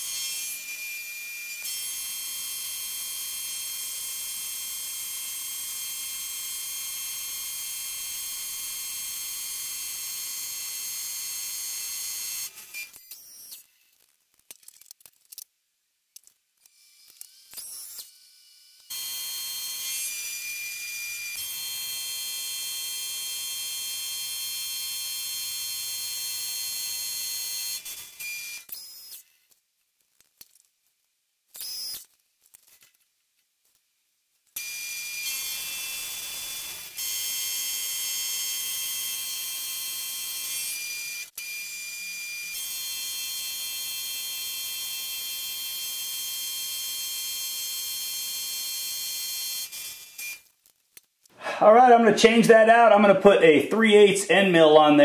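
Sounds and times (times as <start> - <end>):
mill-drill motor whining: 0.0 - 13.6, 16.7 - 29.2, 34.6 - 50.5
faint handling sounds: 29.3 - 34.6.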